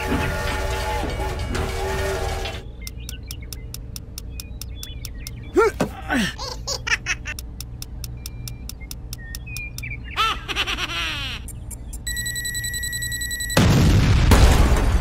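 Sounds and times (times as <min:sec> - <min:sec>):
rapid ticking: 0:02.8 - 0:05.5
cartoon giggles and laughter: 0:06.0 - 0:07.4, 0:10.1 - 0:12.0.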